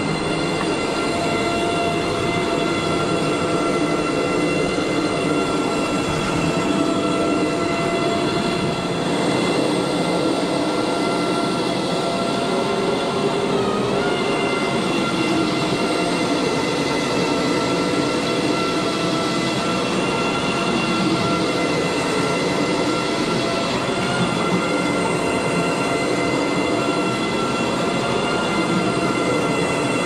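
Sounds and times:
carpet extraction vacuum drone: 0.0s - 30.0s.

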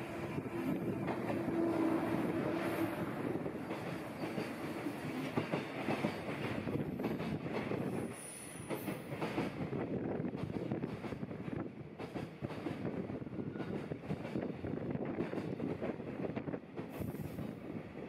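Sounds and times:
electric locomotive hum: 0.0s - 8.2s.

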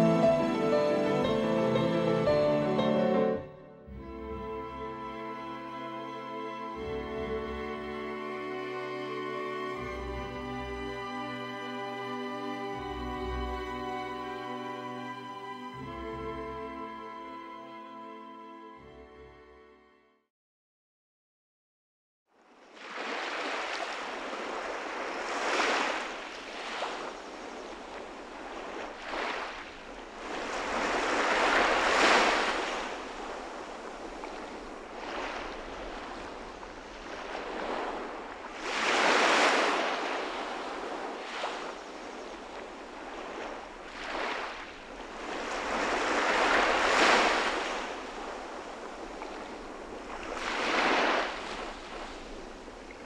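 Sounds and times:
sea waves washing onto shore: 5.0s - 16.0s, 22.6s - 53.0s.

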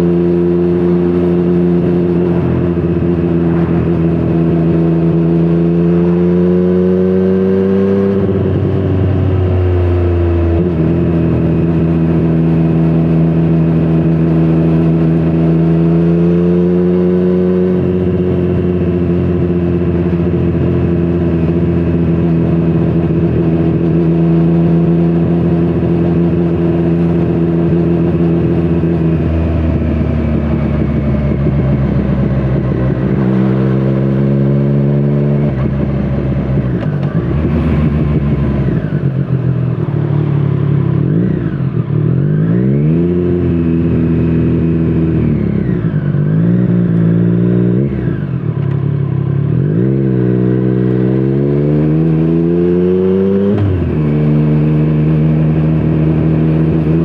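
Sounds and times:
motorcycle engine revving: 0.0s - 57.0s.

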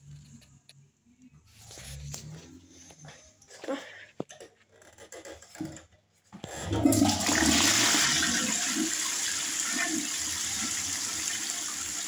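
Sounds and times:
water rushing round toilet bowl: 6.5s - 12.0s.

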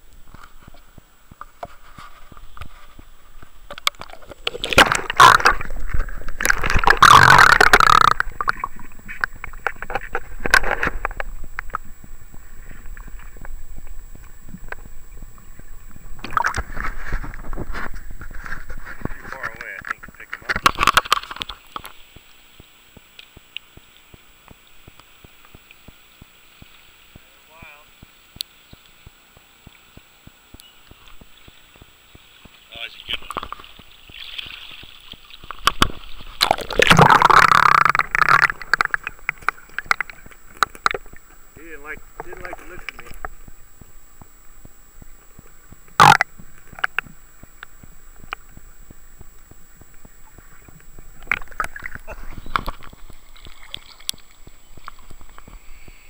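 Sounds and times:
muffled underwater river: 0.0s - 56.0s
underwater clicks and ticks: 0.0s - 56.0s
river running over rocks: 3.0s - 17.6s, 32.5s - 41.5s
light ticks: 28.0s - 32.6s.

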